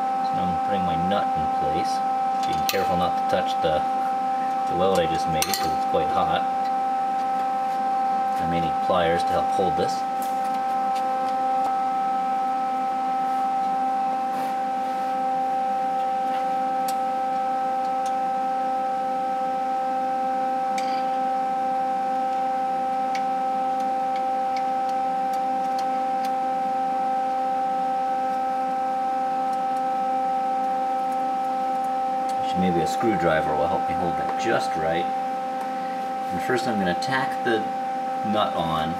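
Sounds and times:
steady multi-pitch whine: 0:00.0 - 0:38.9.

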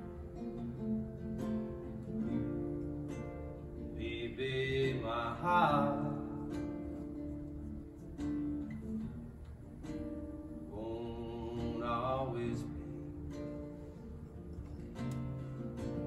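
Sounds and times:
acoustic guitar: 0:00.0 - 0:16.0
person singing: 0:10.7 - 0:13.3.

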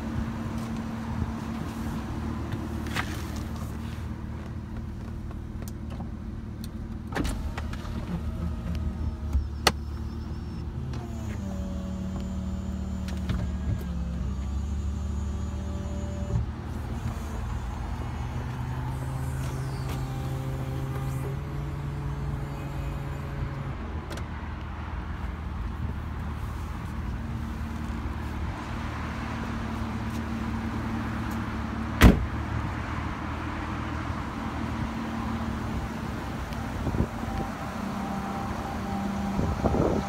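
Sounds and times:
electric motor whining: 0:07.9 - 0:23.6.

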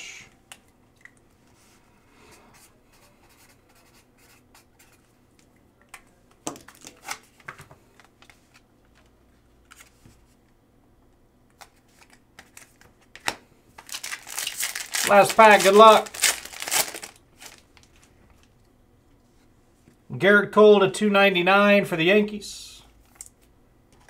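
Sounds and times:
marker scratching on paper: 0:02.6 - 0:05.0
paper rustling: 0:11.6 - 0:18.1.

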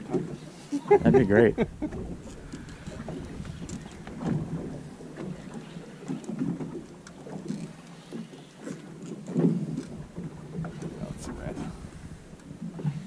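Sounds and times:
water sloshing against boat hull: 0:00.0 - 0:13.0
wind on microphone: 0:00.8 - 0:05.8, 0:10.8 - 0:13.0.

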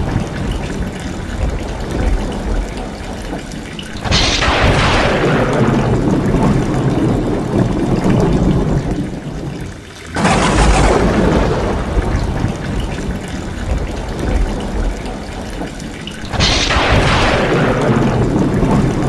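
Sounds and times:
heavy rain: 0:00.0 - 0:19.0
rainwater pouring off roof: 0:00.0 - 0:19.0
loud thunderclap: 0:04.0 - 0:09.2, 0:10.2 - 0:15.2, 0:16.2 - 0:19.0.

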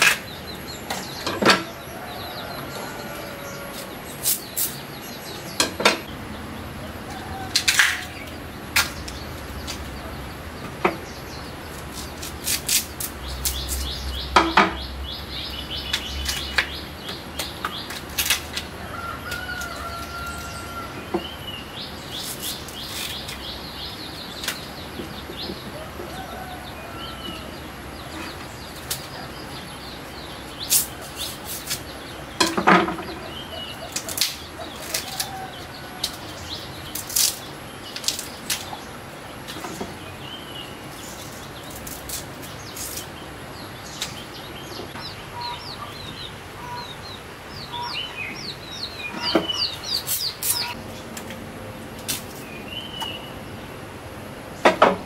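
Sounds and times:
small birds chirping: 0:00.0 - 0:53.8
bamboo husk cracking and tearing: 0:11.7 - 0:14.0, 0:17.4 - 0:18.7, 0:22.1 - 0:23.5, 0:33.9 - 0:38.8, 0:40.9 - 0:43.2.

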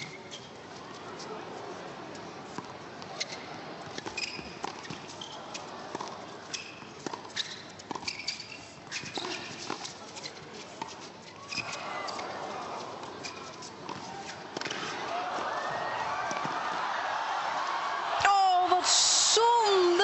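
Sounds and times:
shoes squeaking on court: 0:00.0 - 0:01.2, 0:02.5 - 0:16.7
tennis ball hit and bouncing: 0:13.0 - 0:15.0, 0:16.3 - 0:16.6.

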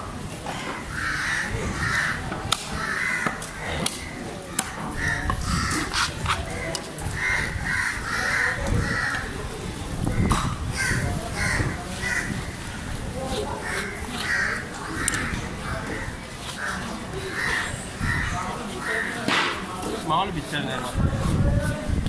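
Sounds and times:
crows cawing: 0:00.5 - 0:04.1, 0:04.9 - 0:06.0, 0:06.6 - 0:09.3, 0:10.1 - 0:12.6, 0:13.6 - 0:19.3.

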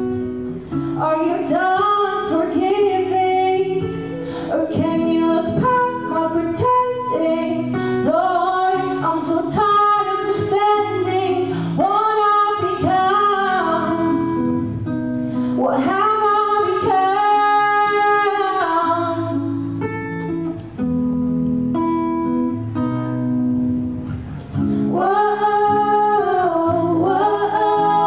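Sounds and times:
acoustic guitar: 0:00.0 - 0:28.0
women singing: 0:01.0 - 0:14.4, 0:15.5 - 0:19.6, 0:24.8 - 0:28.0.

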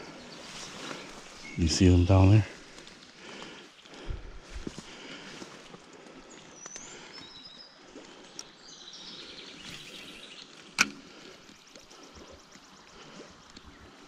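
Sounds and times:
birds chirping and whistling: 0:06.1 - 0:10.7.

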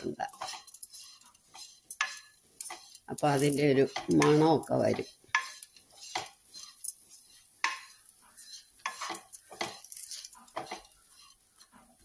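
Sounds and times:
wooden spatula scraping pan: 0:00.0 - 0:12.0.

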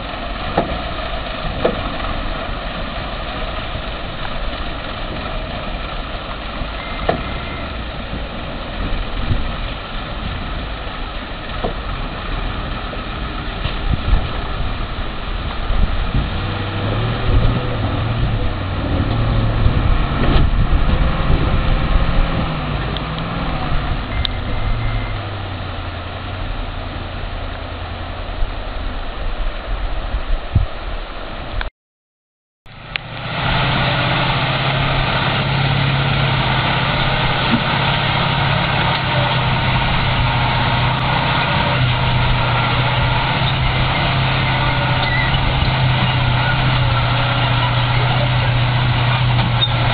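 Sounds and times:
steady noisy hiss: 0:00.0 - 0:31.6
heavy truck engine labouring: 0:00.0 - 0:31.7, 0:32.7 - 0:49.9
truck engine running steadily: 0:00.0 - 0:31.7, 0:32.7 - 0:49.9.

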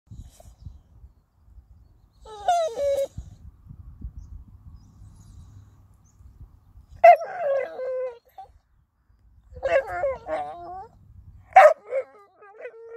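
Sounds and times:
dog whining: 0:02.2 - 0:03.2, 0:07.0 - 0:08.6, 0:09.6 - 0:11.0.

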